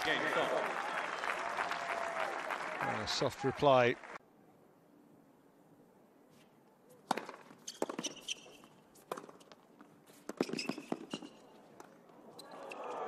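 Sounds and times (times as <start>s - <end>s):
shoes squeaking on court: 6.9s - 13.0s
tennis ball bouncing on court: 7.0s - 9.6s, 10.2s - 12.0s.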